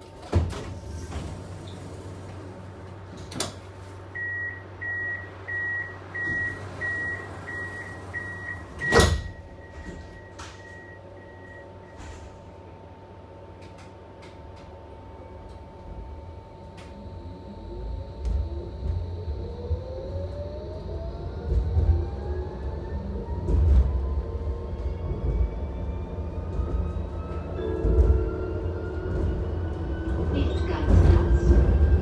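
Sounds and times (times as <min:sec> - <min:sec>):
low hum inside tram: 0:00.0 - 0:32.0
doors shutting thump: 0:08.6 - 0:10.6.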